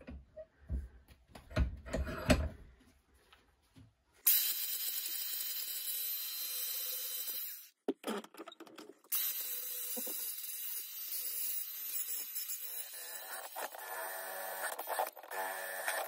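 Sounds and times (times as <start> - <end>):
angle grinder cutting metal: 4.3 - 7.7, 9.1 - 16.0.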